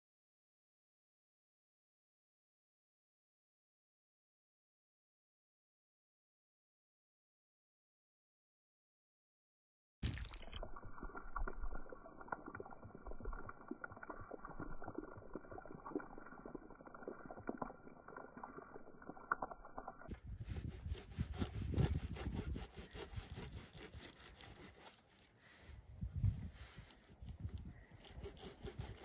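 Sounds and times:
plastic knife sawing steak: 20.3 - 25.3, 26.8 - 29.0.

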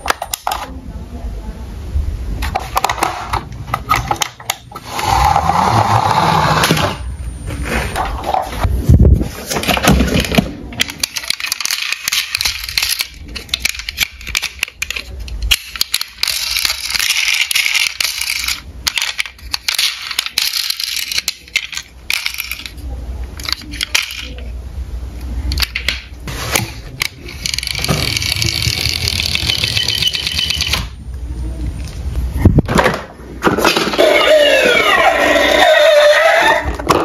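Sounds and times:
toy cars clicking and rattling: 9.5 - 24.5, 25.5 - 31.0.

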